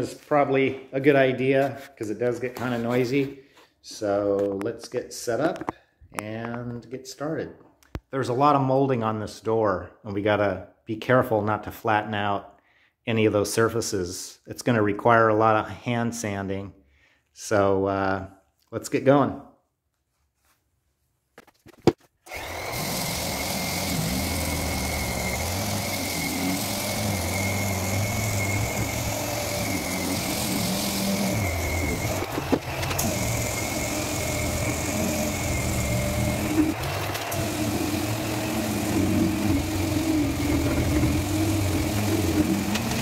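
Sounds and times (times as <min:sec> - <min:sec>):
orbital sander running: 0:22.3 - 0:43.0.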